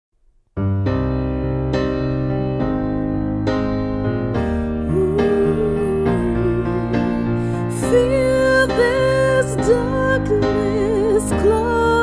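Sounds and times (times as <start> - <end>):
piano chords: 0.4 - 12.0.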